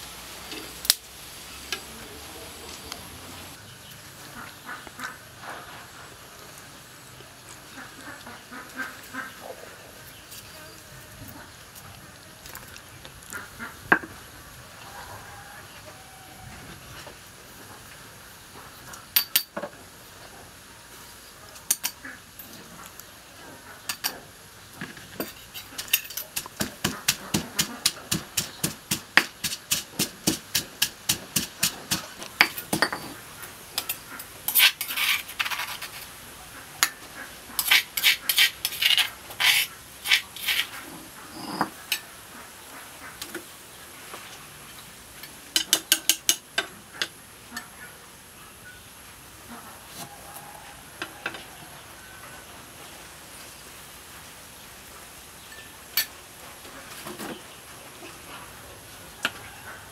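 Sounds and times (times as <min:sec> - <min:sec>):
pestle pounding in a mortar: 0:25.8 - 0:33.1.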